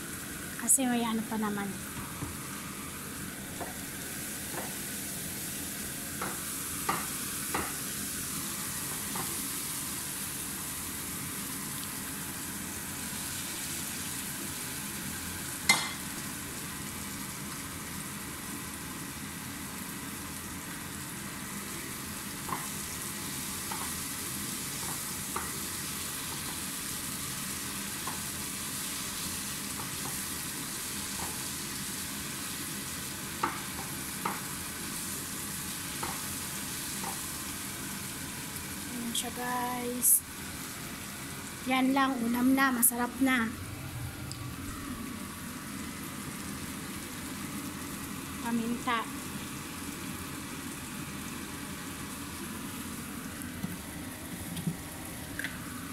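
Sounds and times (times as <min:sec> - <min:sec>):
meat sizzling in a frying pan: 0:00.0 - 0:43.6, 0:44.5 - 0:55.9
spatula knocking on pan: 0:06.2 - 0:07.8.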